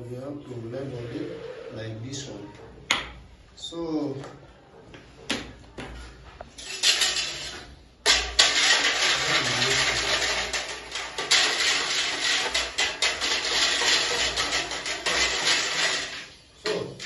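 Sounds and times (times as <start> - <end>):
whisk scraping metal pot: 6.7 - 17.0.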